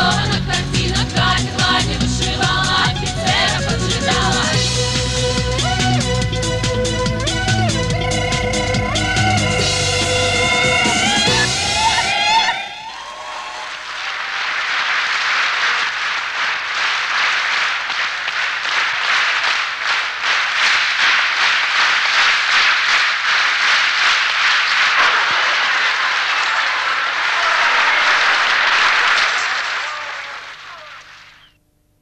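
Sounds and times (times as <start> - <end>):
audience applauding: 10.7 - 31.5.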